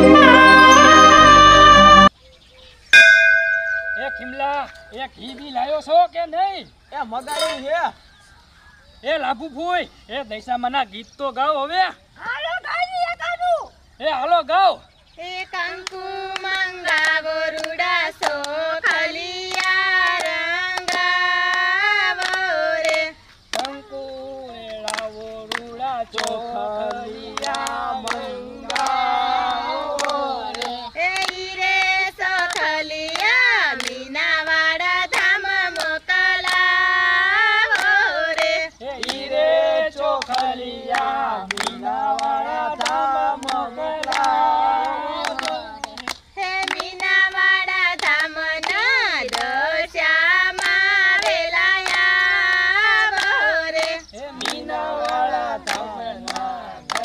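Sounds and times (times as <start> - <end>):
voices singing devotional song: 0.0 - 2.1, 3.0 - 5.6, 14.0 - 57.0
hand clapping: 3.0 - 5.0, 15.8 - 36.7, 37.6 - 39.4, 40.0 - 49.7, 50.5 - 57.0.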